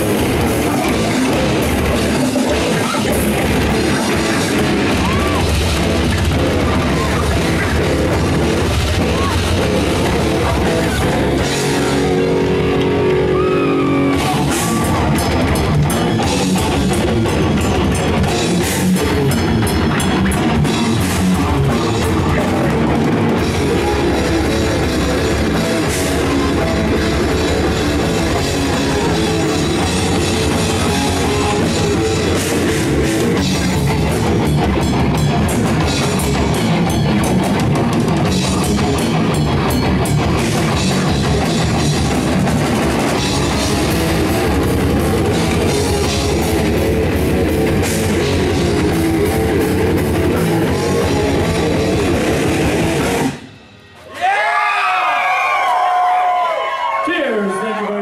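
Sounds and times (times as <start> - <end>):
pounding drum kit: 0.0 - 54.5
death metal band playing: 0.0 - 55.4
heavy distorted guitars: 0.0 - 58.0.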